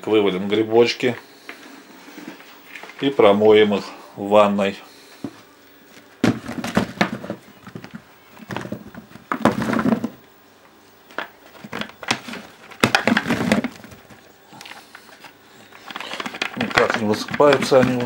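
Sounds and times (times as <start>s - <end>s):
mushrooms tumbling into plastic basin: 5.2s - 10.2s, 11.1s - 18.0s.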